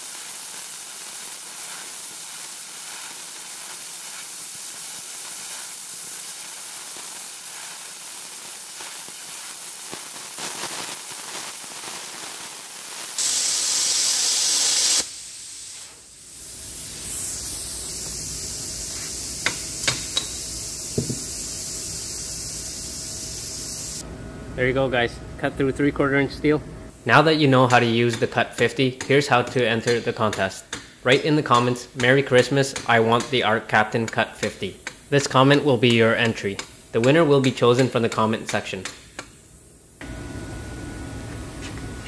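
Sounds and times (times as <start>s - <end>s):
plasma cutter hissing: 0.0s - 24.0s.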